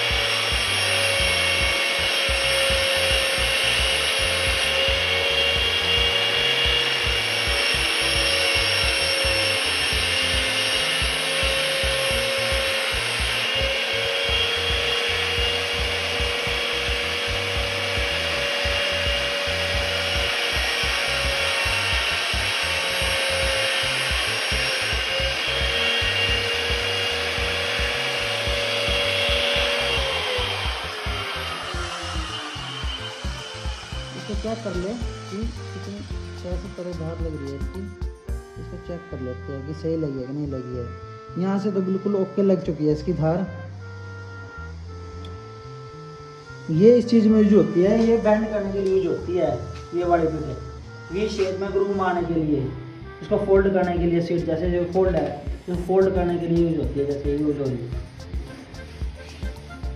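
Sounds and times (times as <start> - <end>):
cutter bit grinding on wheel: 0.0 - 38.4
electric grinder spinning: 0.0 - 38.4, 44.7 - 59.9.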